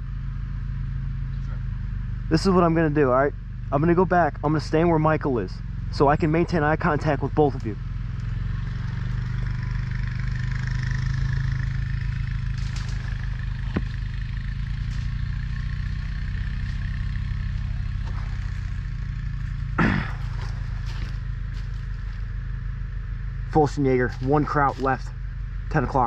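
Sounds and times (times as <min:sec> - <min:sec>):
motor engine humming: 0:00.0 - 0:26.0.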